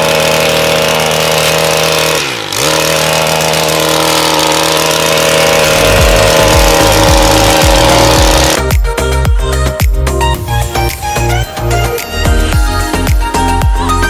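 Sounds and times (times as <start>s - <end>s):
brushcutter engine at high revs: 0.0s - 8.8s.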